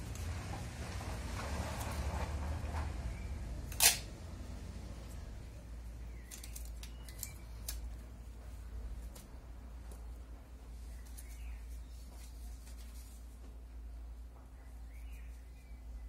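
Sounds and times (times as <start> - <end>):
packing tape pulled off roll: 3.7 - 4.1
scissors snipping tape: 3.7 - 4.1, 6.2 - 8.0.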